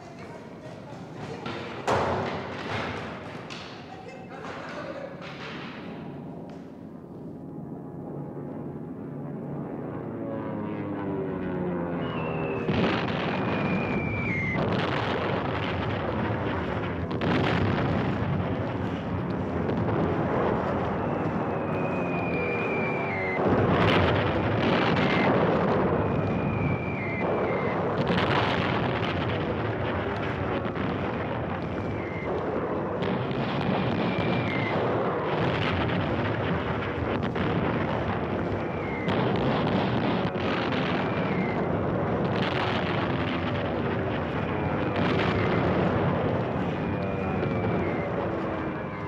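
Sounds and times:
continuous heavy rumble: 5.6s - 49.0s
short falling whistle: 11.9s - 14.7s, 20.8s - 23.4s, 25.9s - 27.9s, 33.8s - 34.9s, 38.6s - 39.4s, 46.6s - 49.0s
large explosions: 12.0s - 49.0s.

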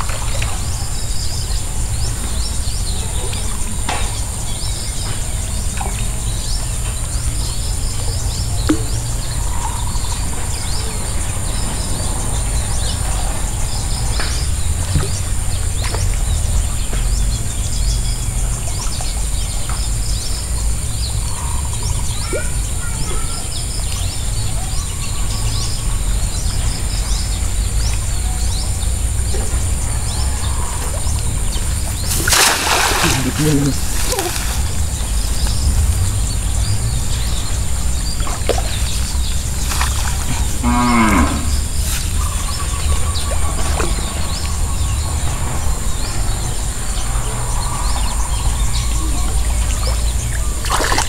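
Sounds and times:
birds chirping: 0.0s - 51.0s
low rumble: 33.8s - 49.1s.

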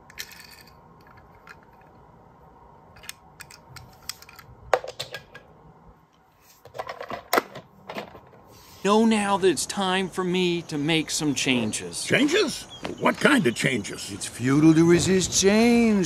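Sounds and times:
toy cars clicking and clattering: 0.0s - 2.0s, 3.0s - 5.4s
faint steady hum: 0.0s - 16.0s.

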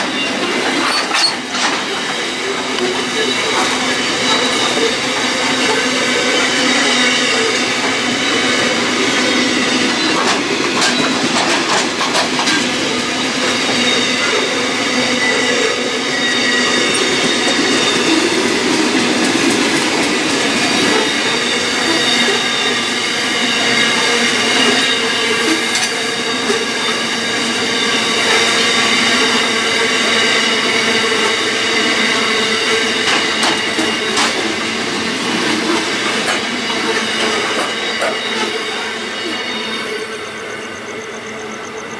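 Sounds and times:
wheels clattering over rail joints: 0.0s - 14.7s
freight train rolling past: 0.0s - 41.9s
train wheels squealing: 0.0s - 41.9s.

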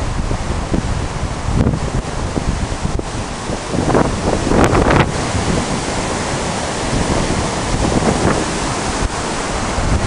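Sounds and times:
river rushing over rocks: 0.0s - 10.0s
wind buffeting microphone: 0.0s - 10.0s.

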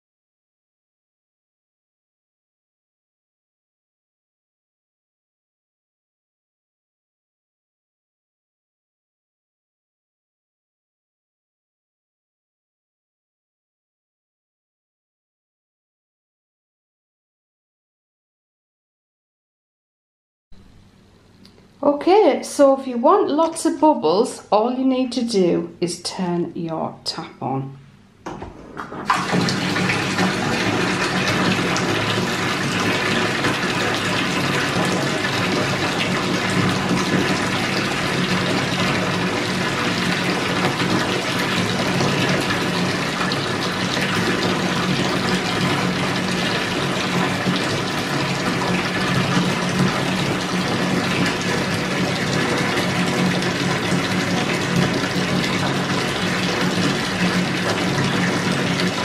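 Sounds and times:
bath tap pouring into water: 28.7s - 59.0s.

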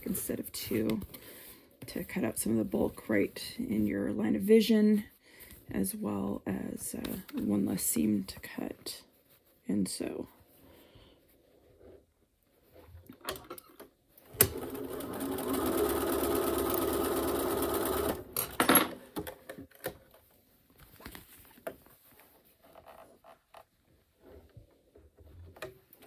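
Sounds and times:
fabric handling: 0.0s - 13.2s, 20.0s - 26.0s
sewing machine stitching: 14.3s - 18.3s.

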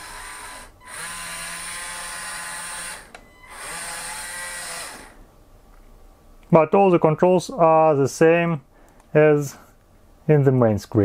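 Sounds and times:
electric motors whining: 0.0s - 5.2s.

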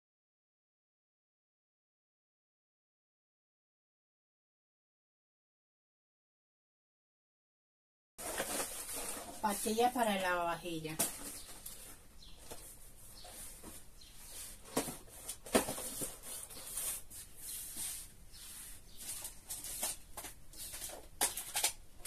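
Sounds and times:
plastic bags rustling: 8.2s - 22.0s.

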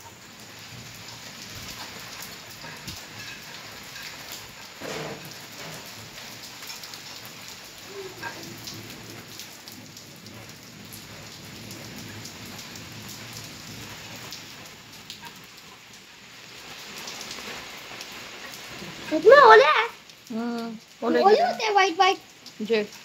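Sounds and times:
hailstones striking hard surfaces: 0.0s - 15.8s
heavy rain hissing: 0.0s - 23.0s.

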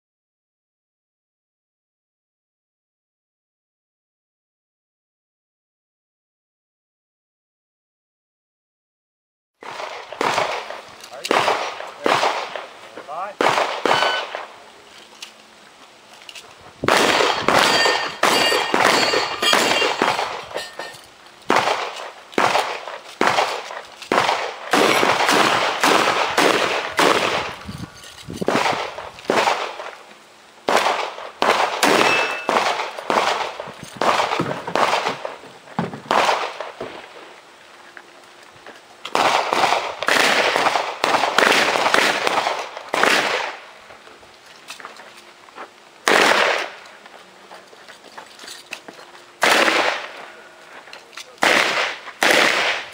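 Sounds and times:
bullets ringing off steel targets: 9.6s - 14.5s, 16.9s - 29.6s, 30.7s - 35.3s
rapid gunshots: 9.6s - 14.5s, 16.8s - 20.6s, 21.5s - 27.6s, 28.5s - 29.9s, 30.7s - 35.4s, 36.1s - 36.8s, 39.1s - 43.6s, 46.0s - 46.8s, 49.4s - 50.2s, 51.4s - 52.9s.

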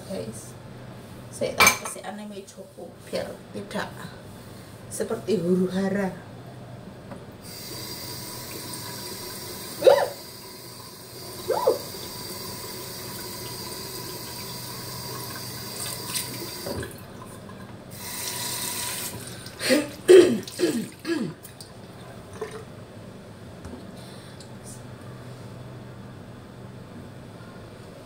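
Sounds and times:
tap water running into sink: 7.5s - 17.1s.

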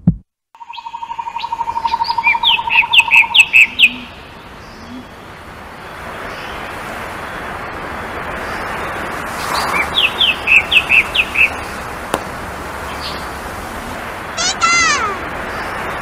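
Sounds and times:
bird chirping: 0.6s - 5.2s
rushing outdoor background noise: 0.6s - 16.0s.

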